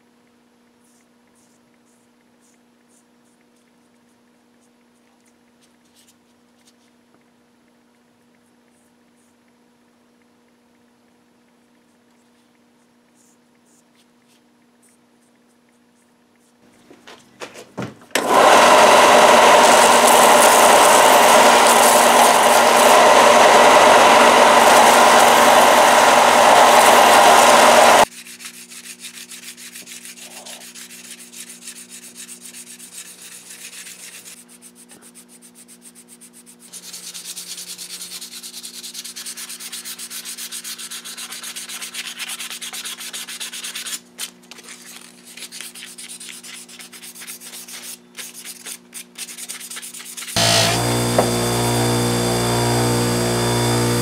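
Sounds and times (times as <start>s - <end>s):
belt sander running: 18.2s - 28.1s, 50.4s - 54.0s
sandpaper rubbing knife blade: 24.5s - 44.1s, 44.7s - 50.4s.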